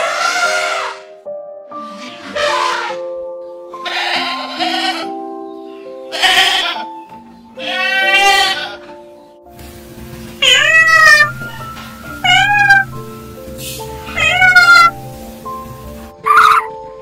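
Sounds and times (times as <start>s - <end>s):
light background music: 0.0s - 17.0s
goats bleating: 3.8s - 5.2s, 6.1s - 7.0s, 7.6s - 8.9s, 10.4s - 13.0s, 14.0s - 15.0s
cat meowing: 6.1s - 6.8s, 7.6s - 8.8s, 10.4s - 13.0s, 14.0s - 15.0s, 16.2s - 16.7s.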